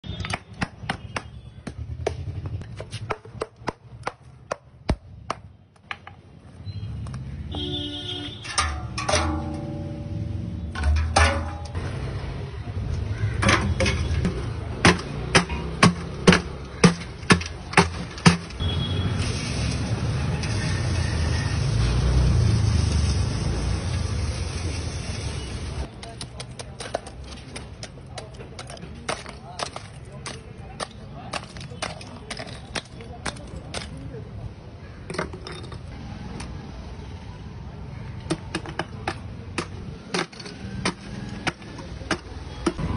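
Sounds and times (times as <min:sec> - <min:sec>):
mallet striking ice: 0:13.5 - 0:18.6, 0:26.1 - 0:34.0, 0:38.3 - 0:42.8
salt pouring into metal barrel: 0:19.0 - 0:25.8
ice pick chipping ice: 0:25.9 - 0:34.1.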